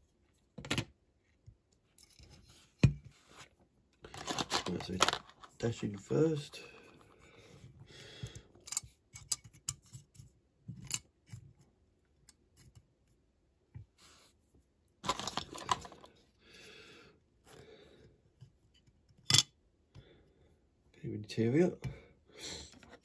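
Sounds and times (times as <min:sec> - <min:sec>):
plastic parts clicking and tapping: 0:04.0 - 0:05.6.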